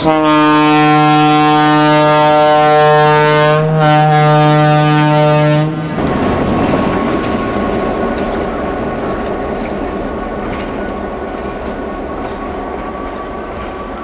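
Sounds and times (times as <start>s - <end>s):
locomotive air horn blast: 0.0s - 6.0s
rumble of boxcars rolling on rails: 4.1s - 14.0s.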